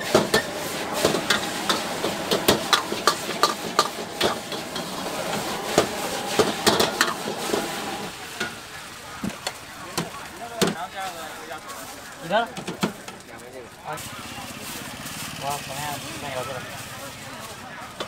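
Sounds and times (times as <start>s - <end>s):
metal utensils scraping a wok: 0.0s - 8.6s, 14.0s - 18.0s
frying sizzle: 0.0s - 18.0s.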